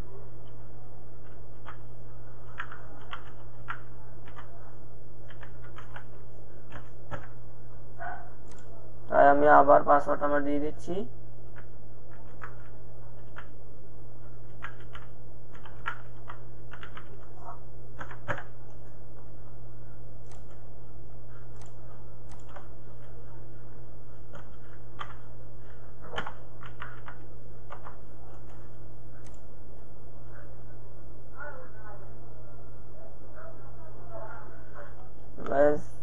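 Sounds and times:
low electrical hum: 0.0 - 36.0
keyboard typing: 1.2 - 7.4, 8.4 - 8.7, 11.5 - 13.6, 14.2 - 19.3, 20.2 - 23.3, 24.1 - 29.5
mouse click: 8.4 - 8.7, 20.2 - 20.6, 29.2 - 29.4.

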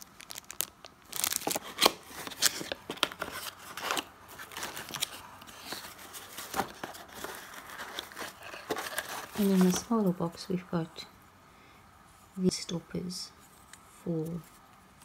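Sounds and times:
plastic and cardboard crinkling: 0.0 - 10.4.

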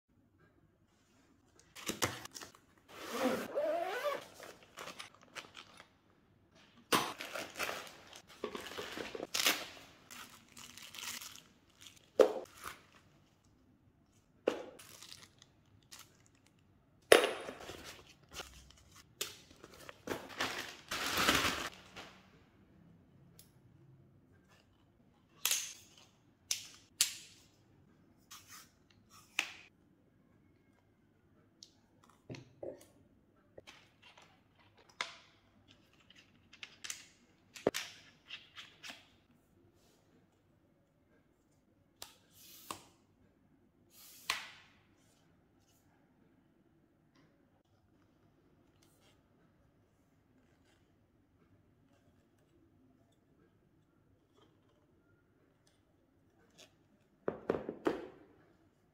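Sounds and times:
cardboard and plastic rustling: 7.1 - 13.1, 17.6 - 22.2.

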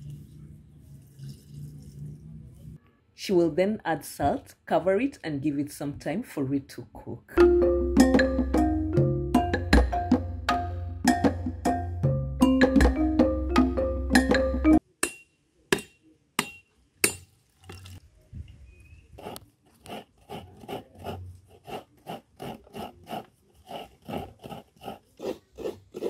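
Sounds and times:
coconut grating on metal grater: 19.2 - 26.0.

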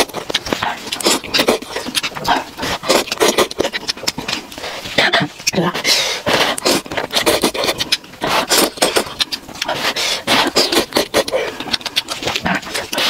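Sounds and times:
slurping noodles: 0.0 - 5.1, 5.8 - 13.0.

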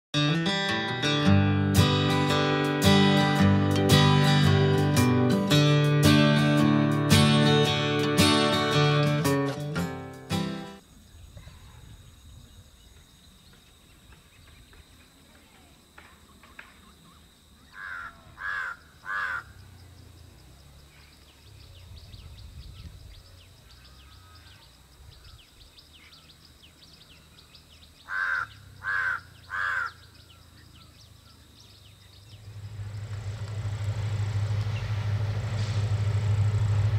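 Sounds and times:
small birds chirping: 11.0 - 33.5
crow cawing: 17.7 - 19.7, 28.0 - 30.2.

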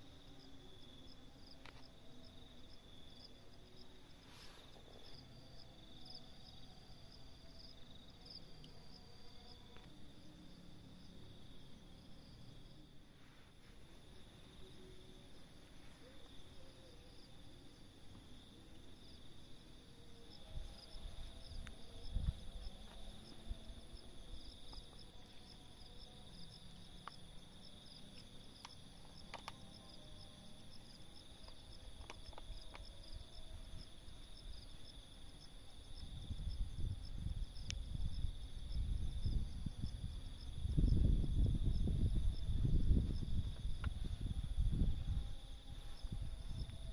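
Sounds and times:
insects chirping drone: 0.0 - 46.9
rapidly pulsing insect call: 0.0 - 46.9
faint clicks: 28.6 - 29.6.

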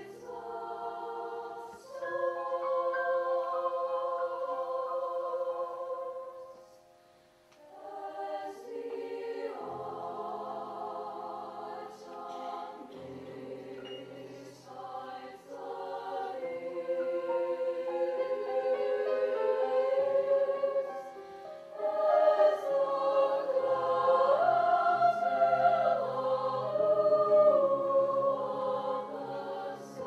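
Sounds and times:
girls' choir singing: 0.0 - 6.9, 7.6 - 30.0.

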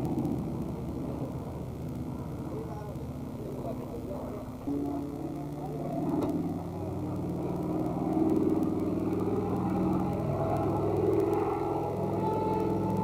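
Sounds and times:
propeller plane engine drone: 0.0 - 13.0.

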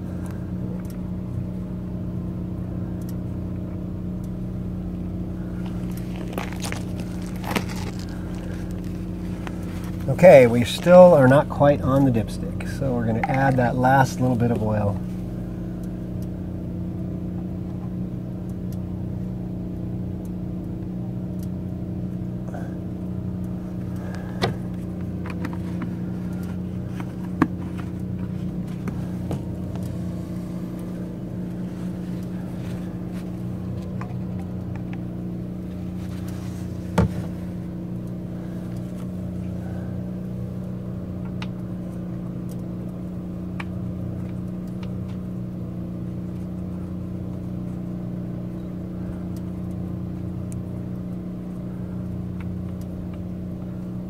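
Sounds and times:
small generator engine humming: 0.0 - 54.0
handling clicks and knocks: 5.5 - 15.1, 23.7 - 39.6.

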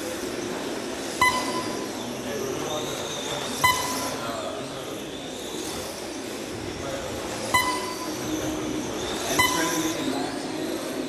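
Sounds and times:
short electronic beeps: 1.2 - 2.0, 3.5 - 4.2, 7.5 - 8.4, 9.1 - 10.2.

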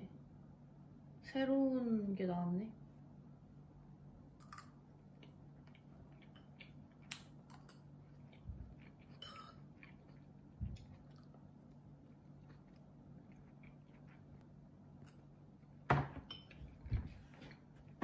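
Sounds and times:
steady low hum: 0.0 - 18.0
soft chewing: 4.4 - 18.0.

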